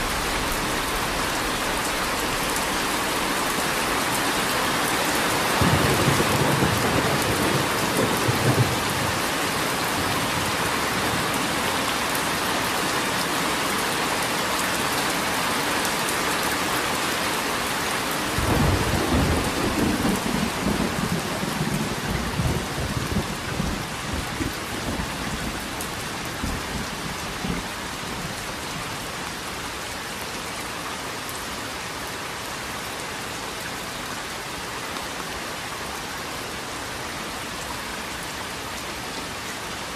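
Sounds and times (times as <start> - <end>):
thunder rumbling: 0.0 - 9.2, 18.4 - 28.4
steady rain falling: 0.0 - 39.9.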